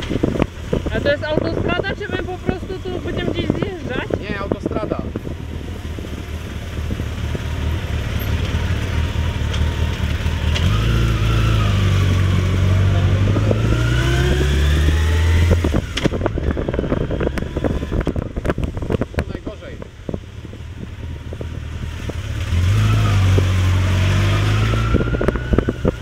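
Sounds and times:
truck diesel drone: 0.0s - 19.1s, 19.9s - 26.0s
motorcycle engines at low speed: 0.0s - 26.0s
engine rising in pitch: 5.4s - 18.3s, 21.0s - 26.0s.

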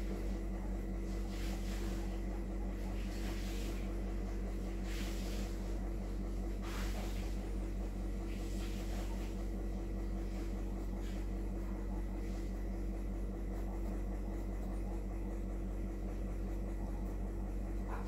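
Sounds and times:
pencil scratching on paper: 0.0s - 18.0s.

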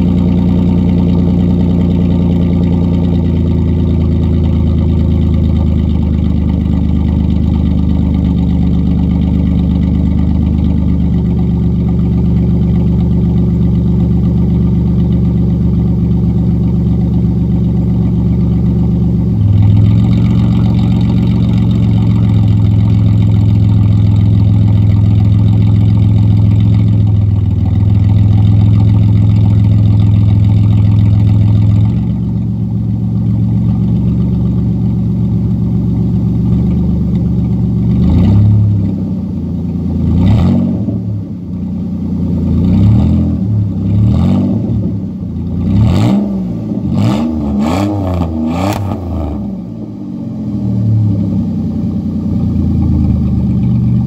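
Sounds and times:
car engine idling: 0.0s - 54.0s
car engine revving: 18.1s - 32.4s, 37.7s - 39.0s, 40.0s - 41.4s, 42.2s - 54.0s.

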